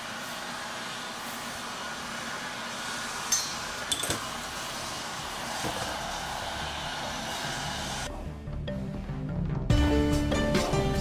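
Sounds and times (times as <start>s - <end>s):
light metallic clinks: 3.3s - 4.2s.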